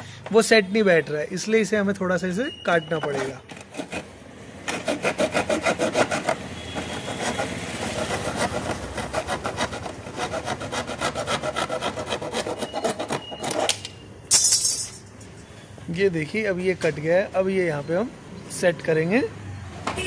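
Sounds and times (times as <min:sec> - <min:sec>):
hand saw cutting plastic: 0:03.2 - 0:13.9.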